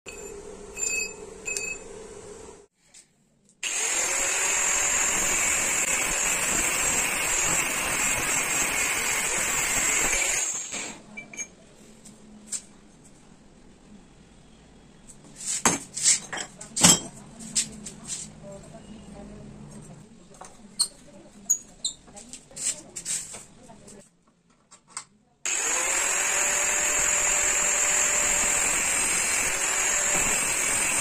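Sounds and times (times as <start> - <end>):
angle grinder cutting steel: 3.6 - 11.0, 25.5 - 31.0.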